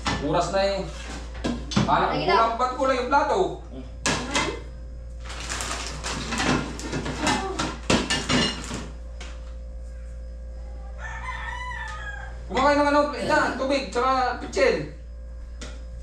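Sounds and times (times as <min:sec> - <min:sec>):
plates and utensils clattering: 0:06.0 - 0:08.9.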